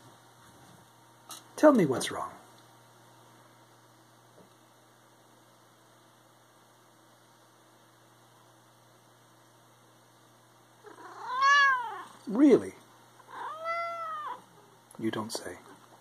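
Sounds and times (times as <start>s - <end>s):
faint steady hum: 0.0s - 16.0s
cat meowing: 10.8s - 12.2s, 13.2s - 14.5s.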